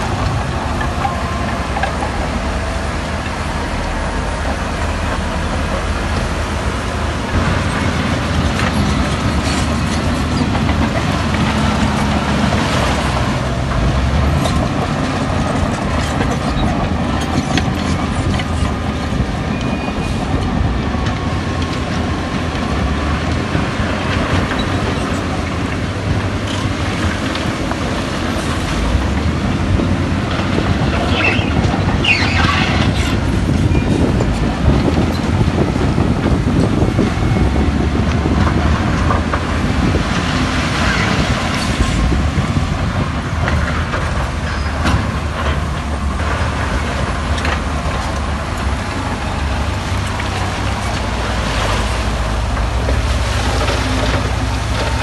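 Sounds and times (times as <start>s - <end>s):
deep diesel engine rumble: 0.0s - 55.0s.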